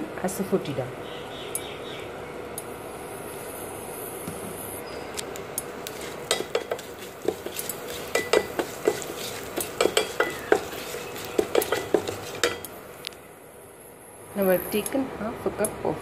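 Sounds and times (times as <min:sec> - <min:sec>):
oil sizzling: 0:05.4 - 0:13.1
spatula knocking and scraping pot: 0:05.8 - 0:12.8.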